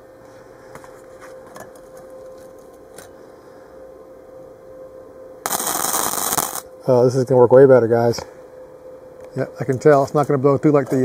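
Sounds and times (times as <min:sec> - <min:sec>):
faint steady hum: 0:00.0 - 0:11.0
welder arc on metal: 0:05.4 - 0:06.7.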